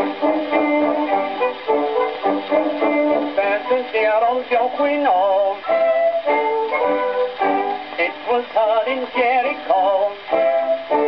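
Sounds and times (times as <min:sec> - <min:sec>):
instrumental accompaniment: 0:00.0 - 0:11.0
man singing: 0:03.1 - 0:06.3, 0:08.0 - 0:11.0.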